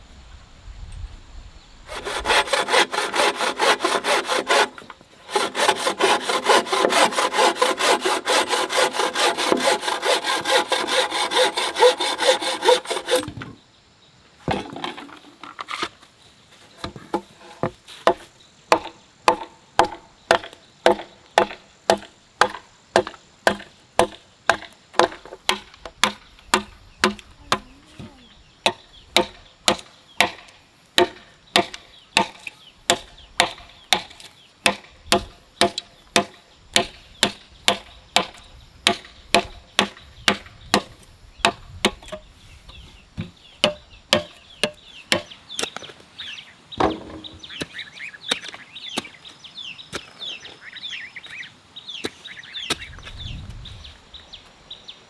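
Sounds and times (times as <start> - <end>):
blade chopping: 1.9 - 13.4.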